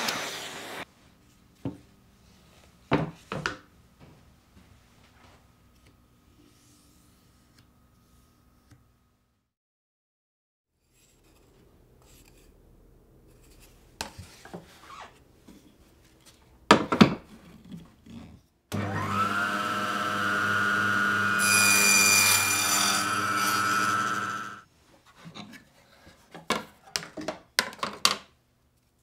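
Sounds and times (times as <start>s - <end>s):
table saw whining: 18.7s - 24.6s
saw blade cutting thin sheet: 21.2s - 24.6s.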